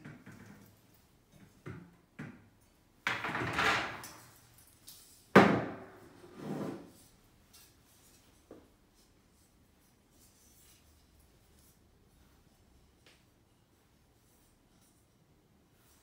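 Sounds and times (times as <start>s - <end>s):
metal tray scraping: 6.1s - 7.0s.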